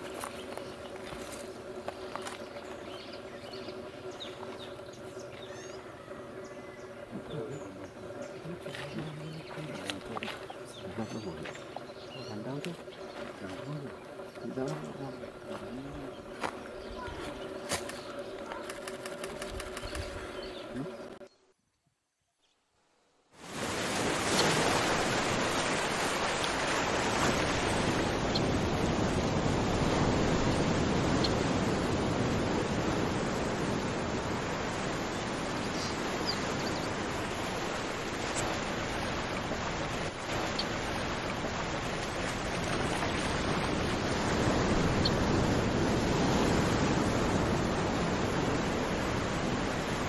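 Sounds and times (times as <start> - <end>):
steady rushing noise: 0.0 - 21.2, 23.3 - 50.0
water running over pebbles: 7.7 - 18.5, 23.4 - 28.2, 36.7 - 44.8.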